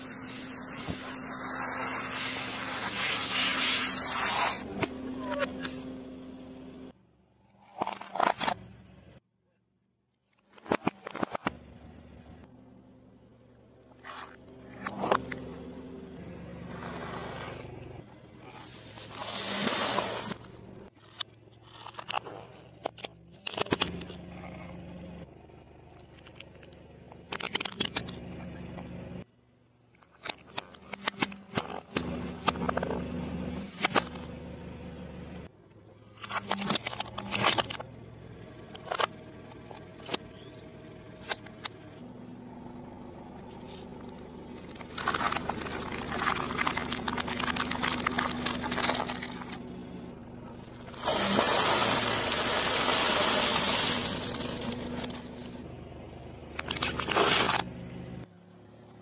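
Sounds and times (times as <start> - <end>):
car engine humming: 0.0 - 7.5, 11.4 - 21.6, 22.4 - 29.8, 31.3 - 59.0
plastic cracking under tyre: 44.0 - 49.7, 50.8 - 55.6.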